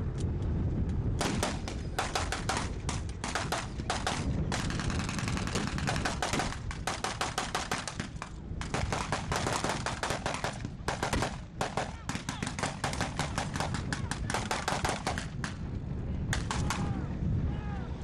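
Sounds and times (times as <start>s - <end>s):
rapid gunfire bursts: 1.2s - 15.5s.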